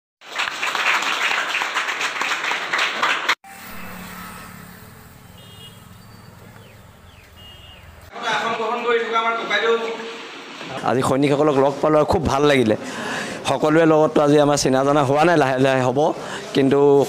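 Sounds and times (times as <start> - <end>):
crowd applauding: 0.2 - 3.4
faint high chirps: 3.5 - 8.1
low outdoor rumble: 3.6 - 8.1.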